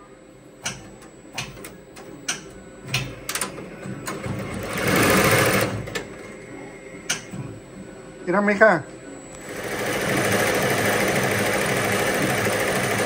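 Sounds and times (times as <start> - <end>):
embroidery machine stitching: 4.1 - 5.9, 9.5 - 13.0.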